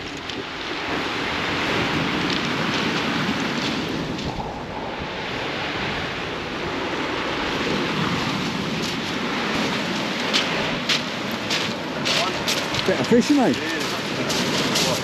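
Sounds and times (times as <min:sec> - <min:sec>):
waves breaking on shingle: 0:00.0 - 0:05.6, 0:06.7 - 0:15.0
wind buffeting microphone: 0:00.0 - 0:15.0.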